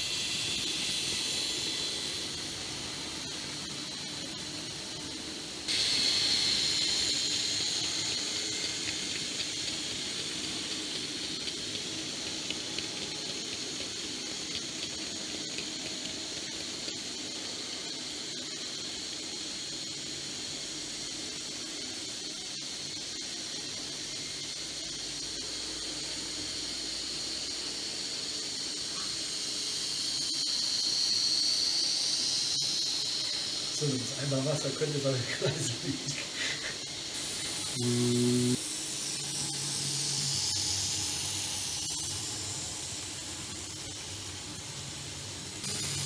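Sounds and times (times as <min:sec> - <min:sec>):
model train motors whining: 0:00.0 - 0:46.0.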